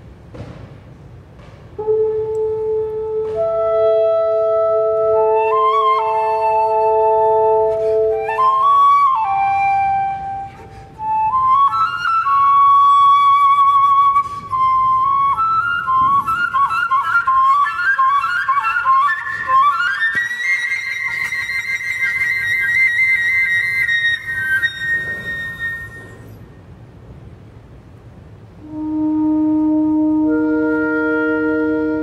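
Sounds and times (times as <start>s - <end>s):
flute fluttering runs: 1.8s - 26.4s
woodwind quintet music: 1.8s - 26.5s, 28.6s - 32.0s.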